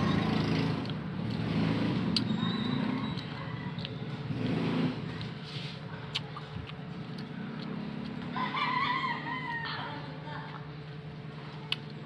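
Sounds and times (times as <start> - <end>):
rooster crowing: 8.3 - 10.0.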